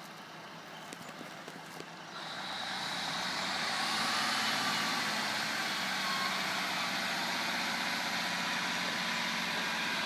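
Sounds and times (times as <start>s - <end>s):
train engine and wheels hissing: 2.1s - 10.0s.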